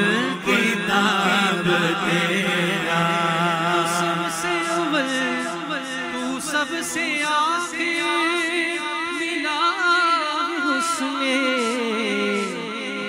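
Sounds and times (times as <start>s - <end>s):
hummed vocal backing: 0.0s - 6.6s.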